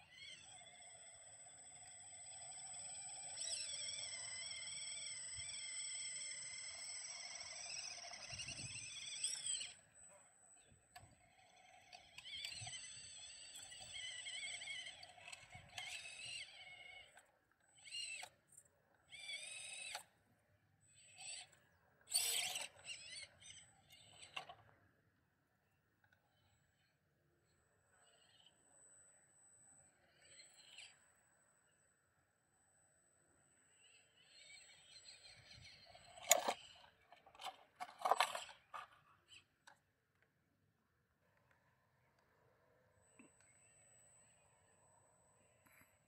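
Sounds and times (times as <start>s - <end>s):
small electric motor whining: 0.0s - 20.2s, 20.8s - 24.8s, 26.1s - 28.6s, 29.8s - 31.9s, 33.6s - 39.7s.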